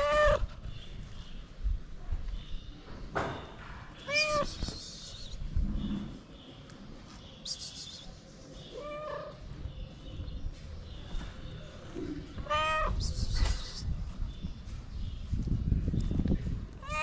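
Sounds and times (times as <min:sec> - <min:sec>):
cat meowing: 0:00.0 - 0:00.5, 0:04.0 - 0:04.6, 0:12.4 - 0:13.0, 0:16.8 - 0:17.0.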